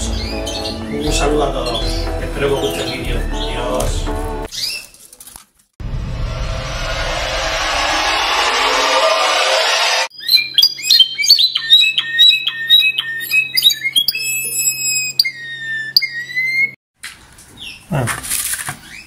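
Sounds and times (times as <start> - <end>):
canary singing: 0.0 - 4.9, 10.1 - 16.8
rushing noise: 5.8 - 10.1.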